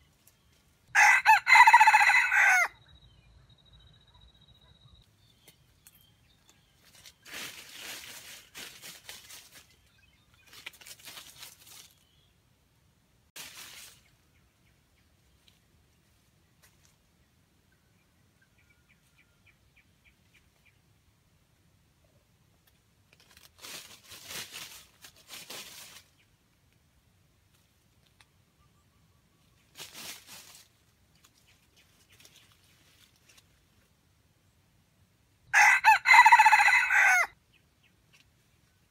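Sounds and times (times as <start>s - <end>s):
rustling in dry leaves: 5.5s - 12.3s, 13.4s - 14.4s, 23.0s - 26.5s, 29.4s - 34.1s, 35.6s - 37.3s.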